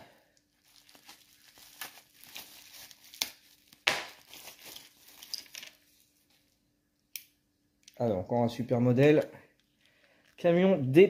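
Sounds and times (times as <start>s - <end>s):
plastic wrapping crinkling: 0.3s - 6.3s.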